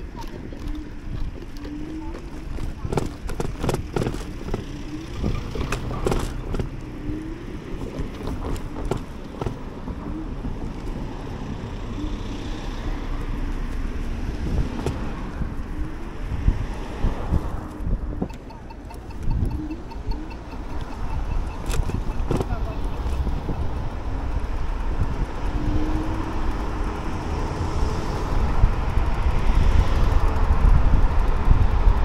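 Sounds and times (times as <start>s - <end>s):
road rumble: 0.0s - 32.0s
wind noise: 0.0s - 32.0s
scooter knocks and rattles: 2.1s - 6.8s, 7.9s - 9.7s, 21.0s - 23.3s.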